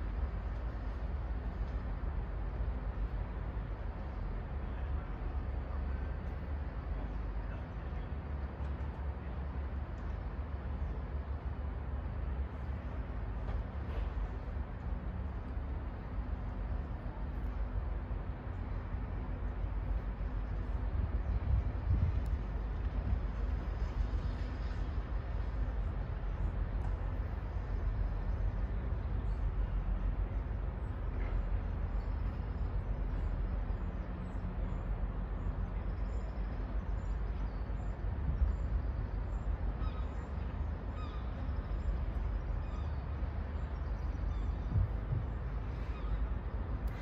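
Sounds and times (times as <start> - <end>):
city ambience rumble: 0.0 - 47.0.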